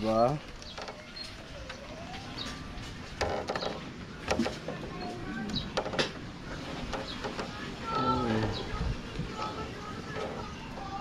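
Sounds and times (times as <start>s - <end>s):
faint outdoor background: 0.0s - 11.0s
sharp knocks and clicks: 3.1s - 4.9s, 5.5s - 7.6s.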